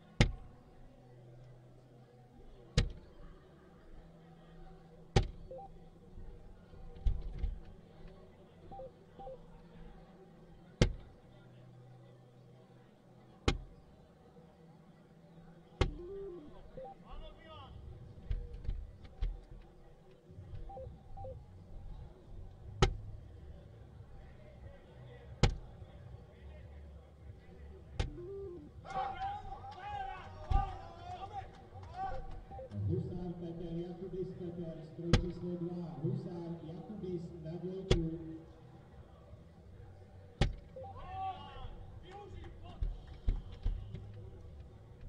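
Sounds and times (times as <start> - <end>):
darts hitting electronic dartboard: 15.8 - 16.4
two-note electronic beep: 16.0 - 17.0.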